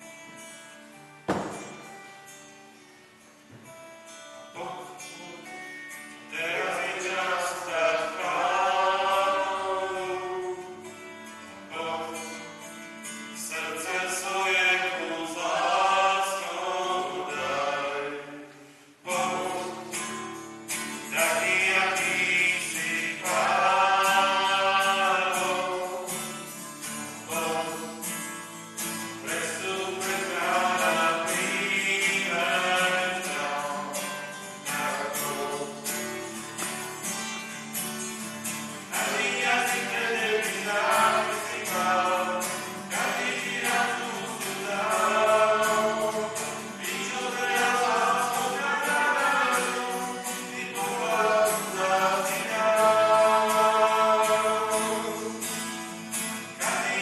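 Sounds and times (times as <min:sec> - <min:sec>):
hymn singing: 0:00.0 - 0:57.0.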